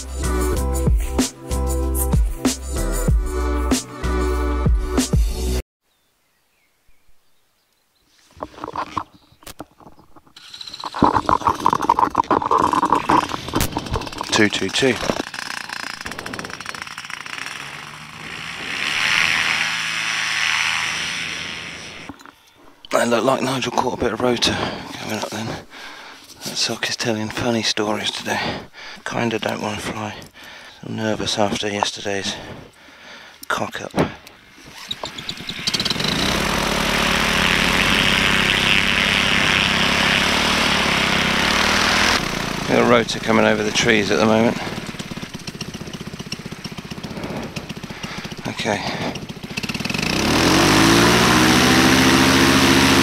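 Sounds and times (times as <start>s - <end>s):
paramotor engine and propeller: 9.8s - 22.3s, 34.5s - 53.0s.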